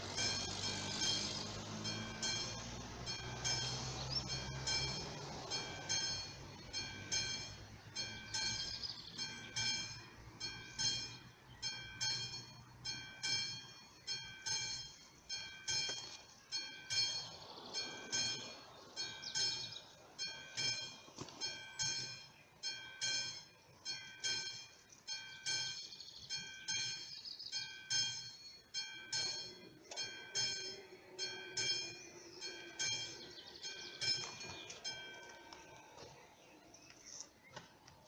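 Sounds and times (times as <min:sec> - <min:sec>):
level crossing bell ringing: 0:00.0 - 0:36.0.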